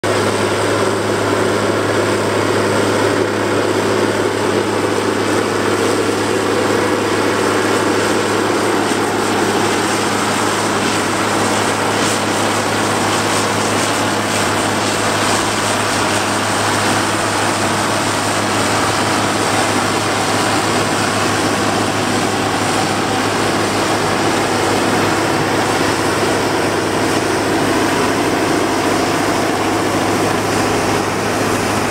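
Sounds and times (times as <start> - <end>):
tractor diesel engine running: 0.0 - 31.9
forage harvester chopping straw: 5.1 - 31.9.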